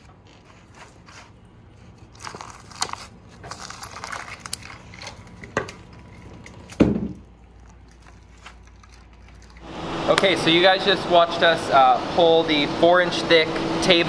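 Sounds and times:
tape crackling off resin: 0:02.0 - 0:10.2.

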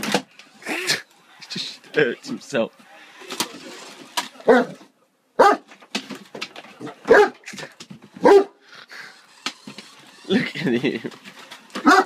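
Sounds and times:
large dog barking: 0:04.4 - 0:04.8, 0:05.4 - 0:05.7, 0:06.9 - 0:07.4, 0:08.2 - 0:08.6.

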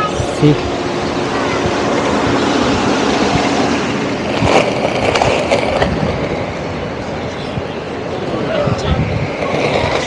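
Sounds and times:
skateboard wheels rolling on concrete: 0:00.0 - 0:10.0
skateboard wheels clacking over cracks: 0:04.2 - 0:06.5.

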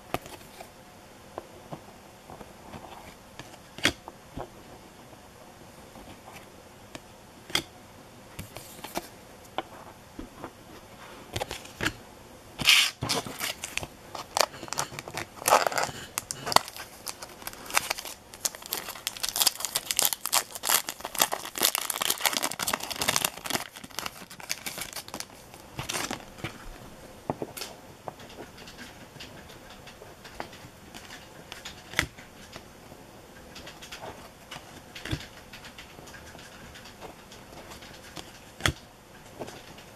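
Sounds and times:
foil wrapper crinkling and tearing: 0:12.7 - 0:26.4.

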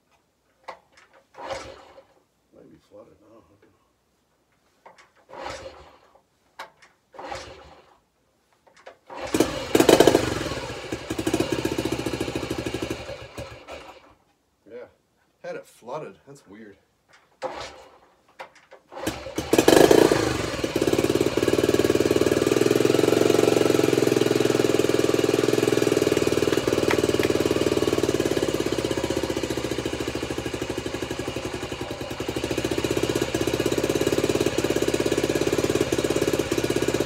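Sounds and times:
motorcycle engine kick start: 0:00.6 - 0:02.1, 0:04.9 - 0:07.9, 0:08.7 - 0:14.1, 0:17.4 - 0:37.0
small engine running steadily: 0:09.2 - 0:14.0, 0:19.0 - 0:37.0.

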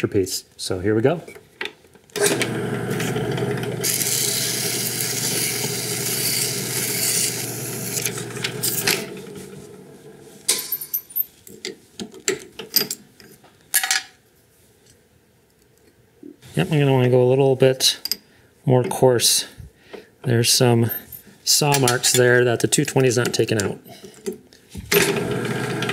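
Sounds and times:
drill press motor hum: 0:02.2 - 0:10.5, 0:24.9 - 0:25.9.

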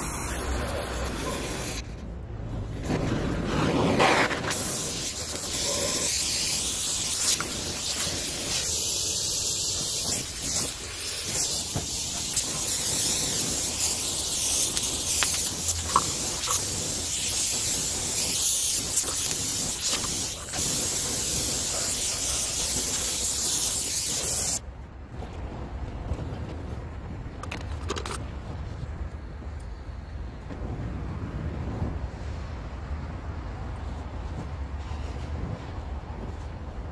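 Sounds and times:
gas torch flame hissing: 0:00.0 - 0:01.8, 0:03.5 - 0:24.6.

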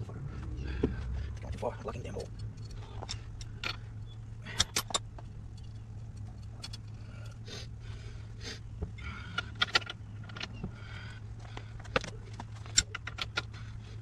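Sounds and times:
steady low hum: 0:00.0 - 0:14.0
metal tools clinking: 0:01.4 - 0:07.4.

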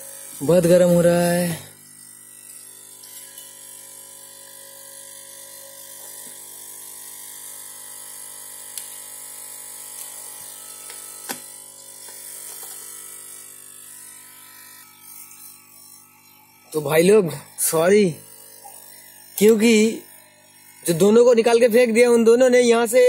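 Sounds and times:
steady buzzing hum: 0:00.0 - 0:23.0.

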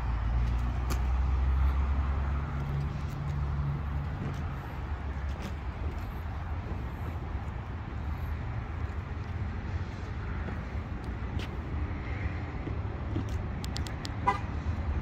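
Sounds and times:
truck engine idling: 0:01.2 - 0:11.7.

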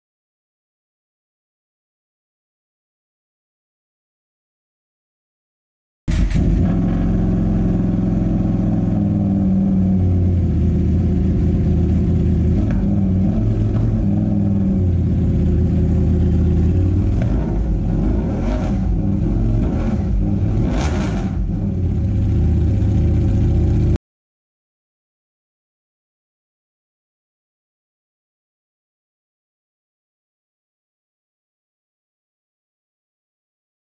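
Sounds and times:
motorcycle engine revving: 0:06.1 - 0:24.0.

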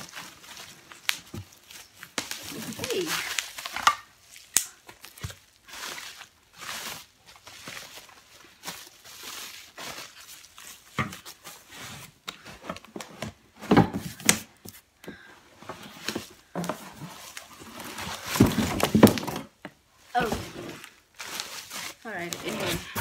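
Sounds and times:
bubble wrap crinkling: 0:00.0 - 0:12.2, 0:15.9 - 0:19.2, 0:20.0 - 0:23.0.

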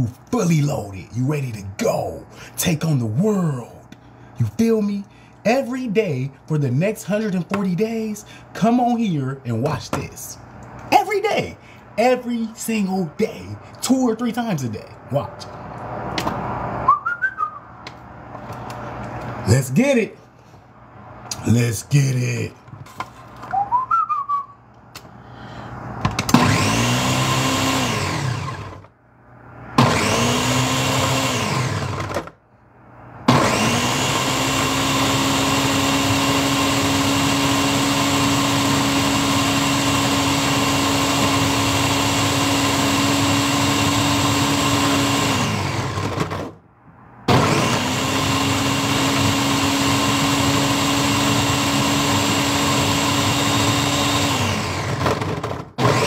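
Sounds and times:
blender motor crushing fruit: 0:26.0 - 0:28.9, 0:29.8 - 0:32.4, 0:33.2 - 0:46.6, 0:47.3 - 0:56.0.

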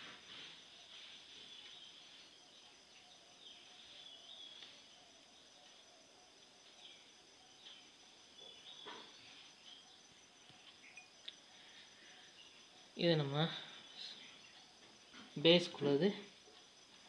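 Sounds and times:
short insect chirps: 0:00.0 - 0:17.0
high-pitched insect chirring: 0:09.2 - 0:13.4.

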